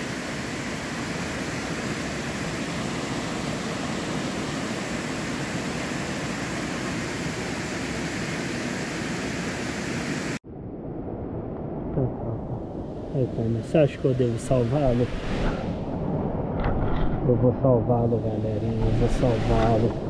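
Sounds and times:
dull quieter water rushing: 0.0s - 20.0s.

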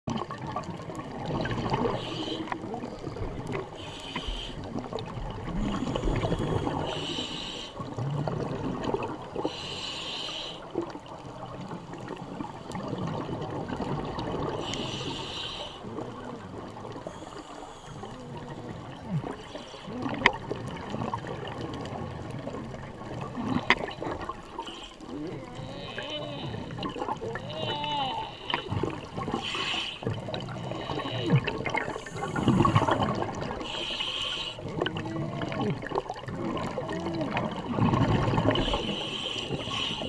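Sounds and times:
exhaled air bubbling: 0.1s - 40.0s
regulator breathing hiss: 1.9s - 2.6s, 3.8s - 4.7s, 5.8s - 7.8s, 9.4s - 10.7s, 14.6s - 15.8s, 17.0s - 18.2s, 29.4s - 33.0s, 33.6s - 34.7s, 38.6s - 40.0s.

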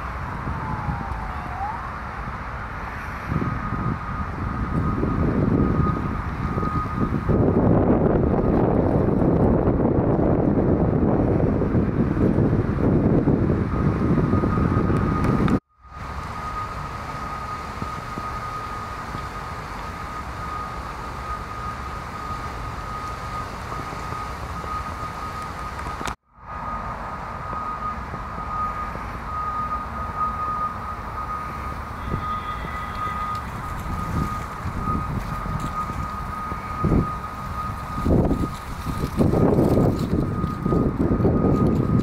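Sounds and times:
distant traffic rumble: 0.0s - 42.0s
thin high whine: 14.2s - 42.0s.

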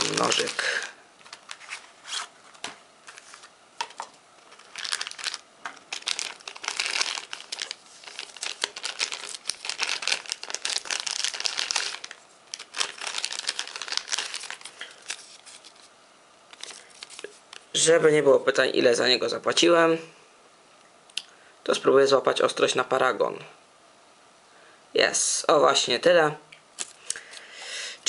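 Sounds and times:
plastic bag crinkling: 0.0s - 2.3s, 3.0s - 15.9s, 16.5s - 17.4s.

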